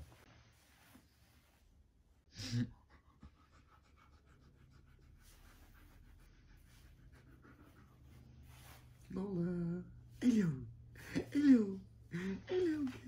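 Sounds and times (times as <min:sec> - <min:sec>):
dog panting: 0:02.8 - 0:08.4.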